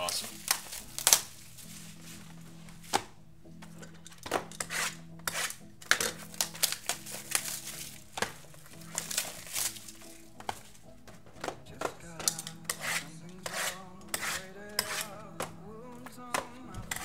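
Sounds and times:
plastic shrink-wrap crinkling and tearing: 0.0s - 2.1s, 5.9s - 10.7s
faint background music: 0.0s - 17.0s.

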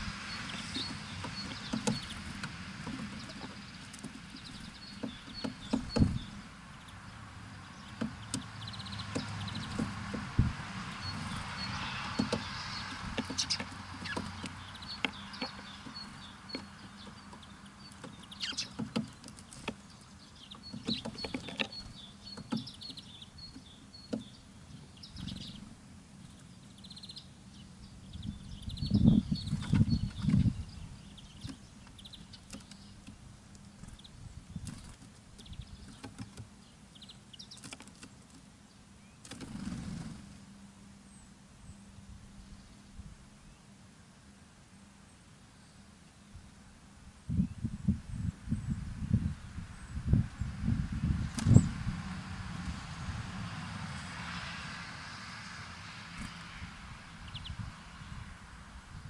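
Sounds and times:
small birds chirping: 0.0s - 52.0s, 56.1s - 59.0s
taps and knocks: 8.0s - 10.4s.

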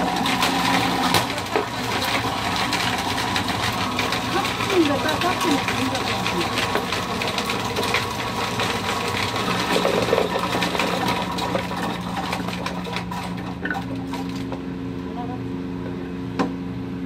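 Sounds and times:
chestnuts rattling in a drum: 0.2s - 13.4s.

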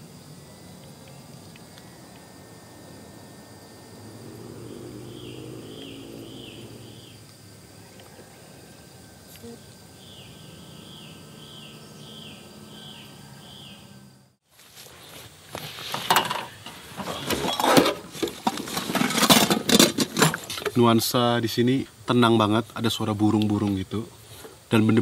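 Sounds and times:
short bird or insect chirps: 0.0s - 14.2s
high-pitched insect drone: 0.0s - 14.4s.

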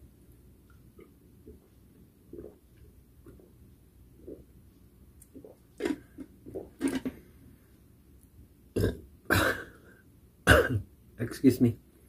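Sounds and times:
man swallowing a drink: 0.9s - 3.5s, 8.8s - 9.6s
loud cough: 9.3s - 9.8s, 10.5s - 10.8s.

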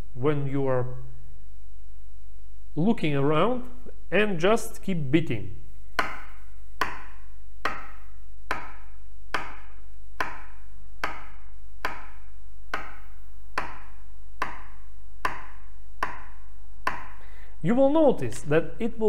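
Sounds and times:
steady low hum: 0.0s - 19.0s
pen tapping hard surface: 6.0s - 17.2s.

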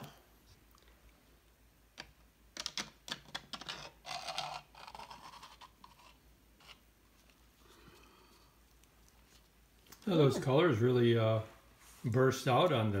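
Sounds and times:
plastic cup scraping on canvas: 3.4s - 6.8s.

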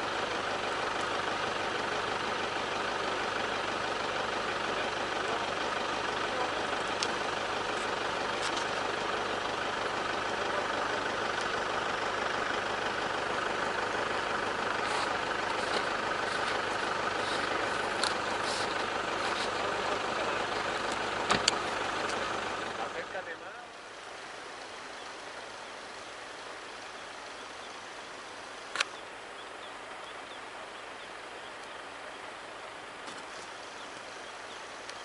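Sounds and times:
vehicle engine idling: 0.0s - 35.0s.

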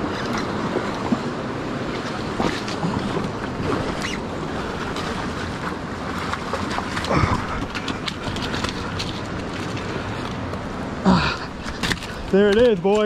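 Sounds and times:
river water rushing: 0.0s - 13.0s
crunches on rocky gravel: 6.7s - 13.0s.

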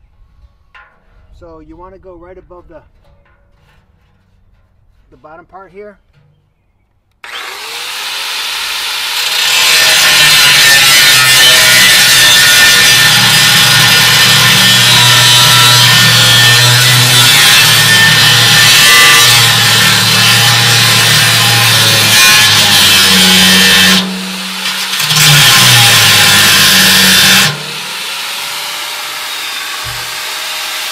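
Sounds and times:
angle grinder cutting steel: 7.2s - 30.9s.

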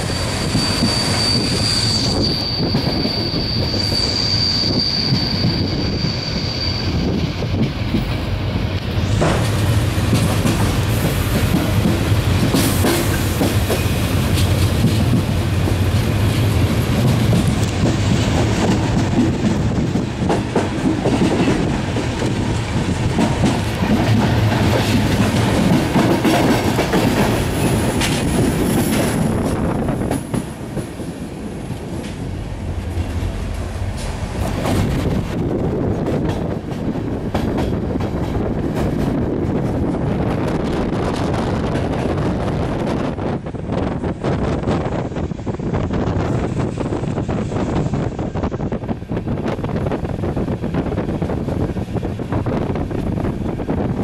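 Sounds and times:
faint high wheel squeal: 0.0s - 7.2s
train rumbling on track: 0.0s - 54.0s.

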